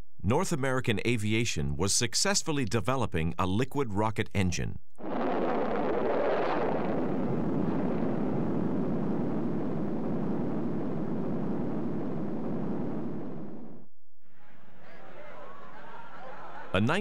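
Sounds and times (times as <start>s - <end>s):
rocket engine roaring: 5.0s - 13.8s.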